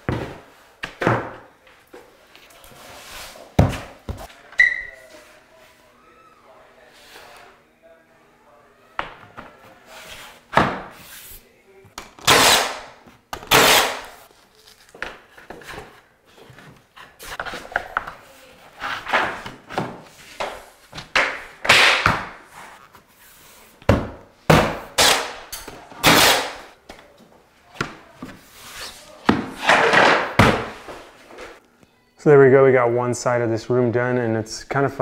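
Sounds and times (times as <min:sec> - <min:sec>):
nail gun firing: 0:12.2 - 0:12.9, 0:13.5 - 0:14.1, 0:25.0 - 0:25.4, 0:26.0 - 0:26.6.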